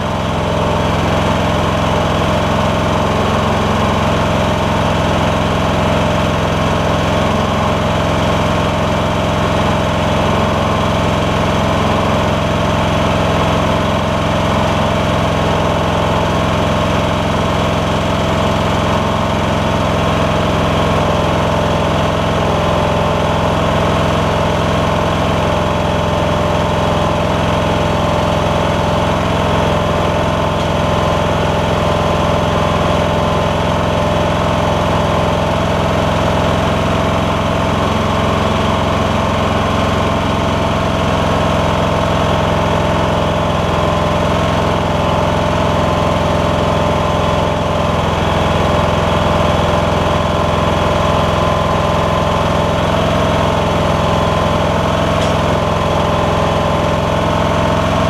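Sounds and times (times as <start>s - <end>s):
lawn tractor engine running: 0.0s - 58.0s.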